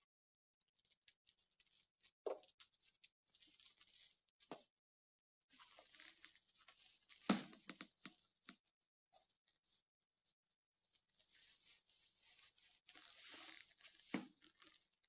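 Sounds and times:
rustling and handling noises: 0.7 - 4.7, 5.5 - 8.6, 10.8 - 15.0.

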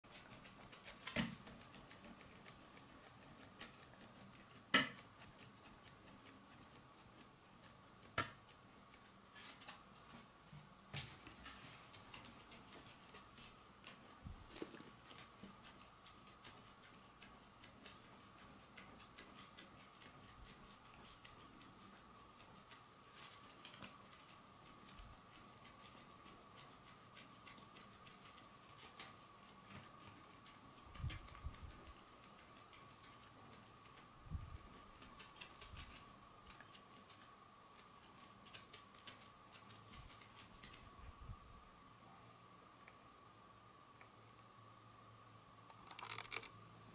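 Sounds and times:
faint high hum: 8.5 - 46.9
small clicks: 45.7 - 46.6.

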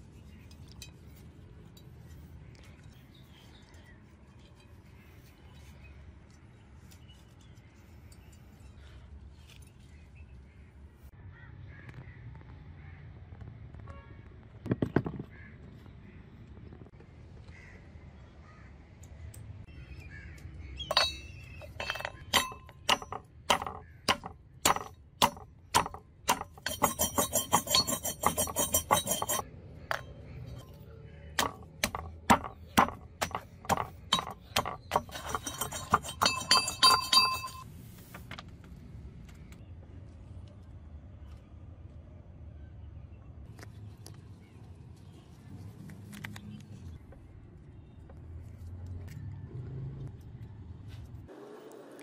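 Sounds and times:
metal pestle pounding in bowl: 20.9 - 30.0, 31.4 - 37.6.

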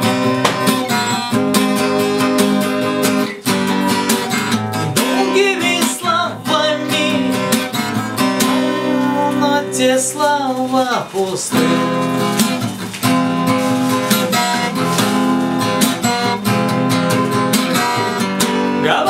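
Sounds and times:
acoustic guitar strumming chords: 0.0 - 19.0
man singing: 5.0 - 12.5, 18.8 - 19.0.

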